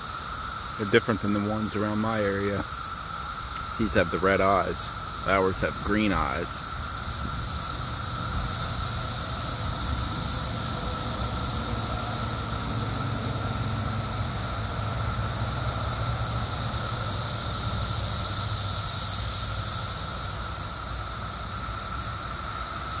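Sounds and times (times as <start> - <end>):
cicadas high-pitched drone: 0.0 - 23.0
lower steady whine: 0.0 - 23.0.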